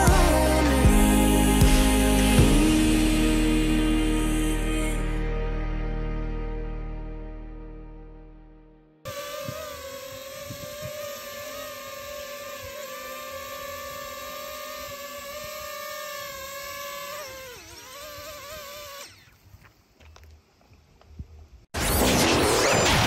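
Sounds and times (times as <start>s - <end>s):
drone propellers whining: 9.1s - 19.6s.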